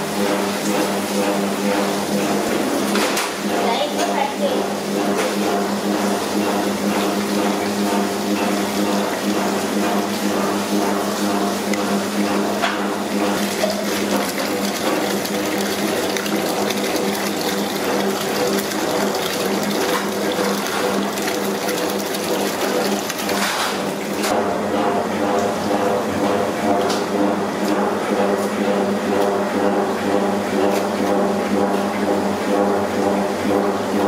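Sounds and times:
hose water splashing into pot: 0:08.7 - 0:24.3.

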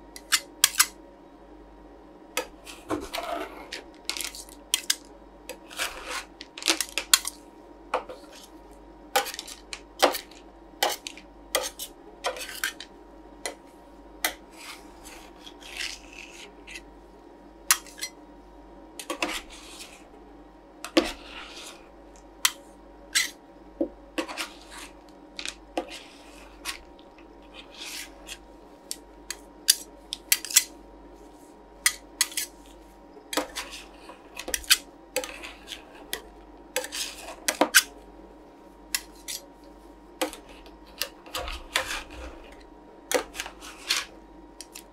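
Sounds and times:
steady low hum: 0:00.0 - 0:44.9
metal spatulas scraping steel plate: 0:36.8 - 0:37.9.

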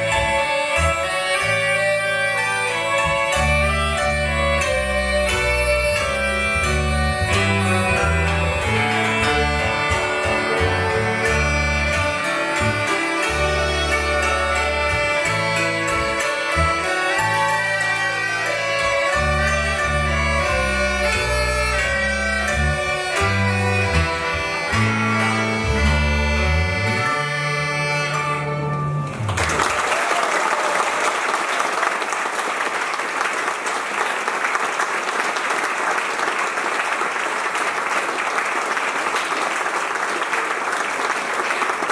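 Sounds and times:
folk band playing: 0:00.0 - 0:30.0
audience applause: 0:29.0 - 0:41.9.

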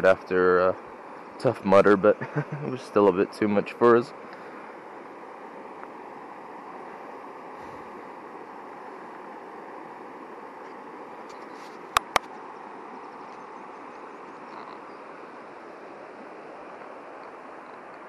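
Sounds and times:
stream water rushing: 0:00.0 - 0:18.0
sharp clicks: 0:12.0 - 0:12.3.

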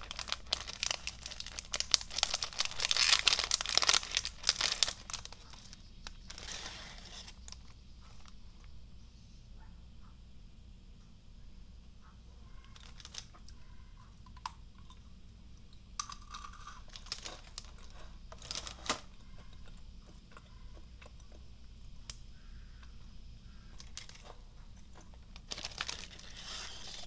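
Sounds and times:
foil wrapper crinkling: 0:00.0 - 0:08.5, 0:12.6 - 0:13.6, 0:16.2 - 0:19.8, 0:23.6 - 0:27.0
crunching pretzel sticks: 0:00.0 - 0:08.7, 0:12.6 - 0:15.0, 0:16.0 - 0:27.0.

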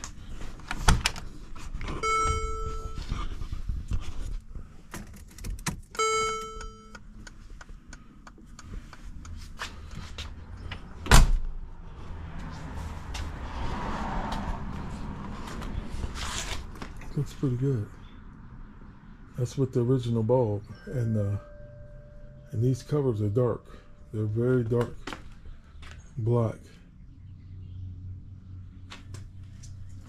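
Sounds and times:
electronic warning chimes: 0:02.0 - 0:03.1, 0:06.0 - 0:07.0, 0:20.6 - 0:24.7
heavy door thump: 0:11.1 - 0:11.5.

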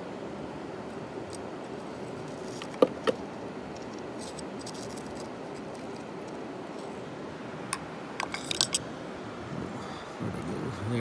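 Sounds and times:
gritty scratching and ticking: 0:01.3 - 0:06.9.

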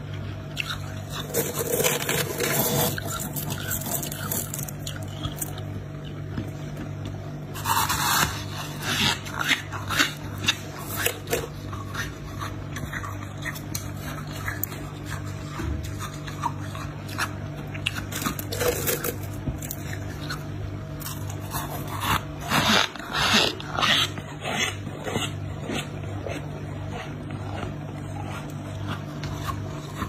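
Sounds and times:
steady low hum: 0:00.0 - 0:30.0
frost crunching and scraping: 0:00.6 - 0:30.0.

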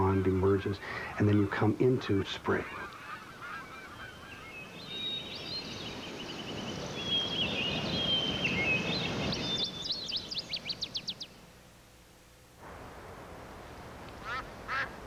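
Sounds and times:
wild birds singing: 0:00.0 - 0:11.6
low rushing noise: 0:10.7 - 0:15.0.

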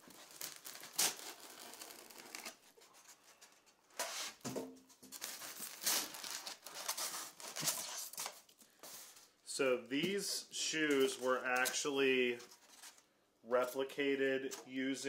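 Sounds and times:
plastic packaging crinkling: 0:00.0 - 0:02.7, 0:05.1 - 0:08.6.

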